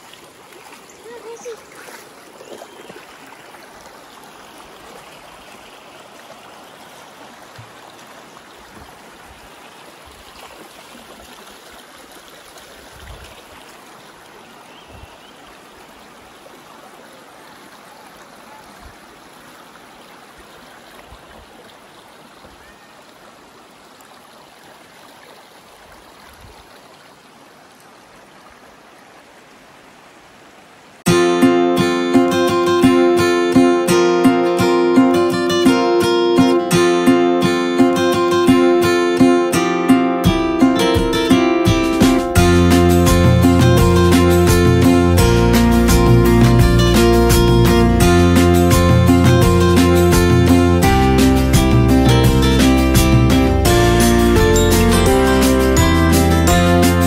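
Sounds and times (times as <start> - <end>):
river flowing over stones: 0.0 - 57.0.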